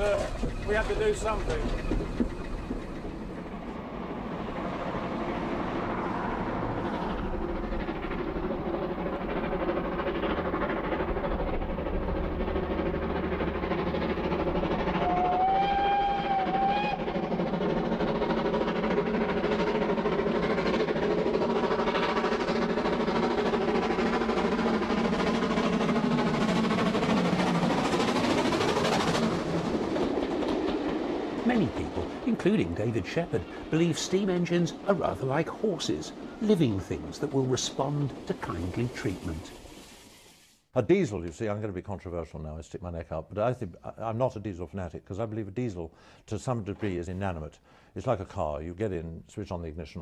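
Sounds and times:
steam train running: 0.0 - 41.7
steam whistle: 15.0 - 17.1.

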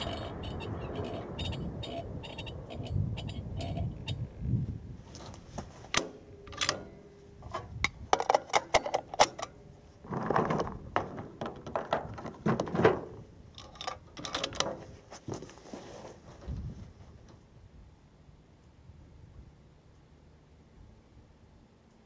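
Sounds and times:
muffled rustles: 5.0 - 6.0, 14.6 - 17.5
sharp clicks and rattles: 5.9 - 14.9.

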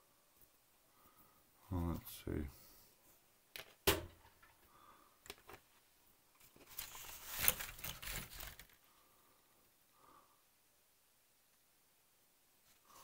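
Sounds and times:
paper rustling: 6.4 - 8.9.

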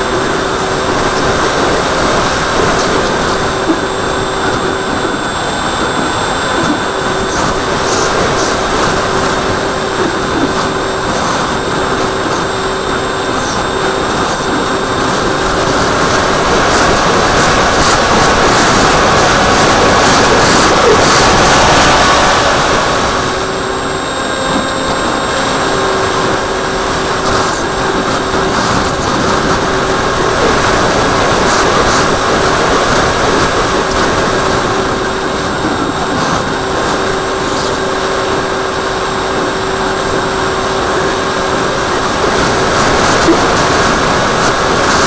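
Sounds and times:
electric motor and propeller hum: 0.0 - 45.0
wind noise: 0.0 - 45.0.

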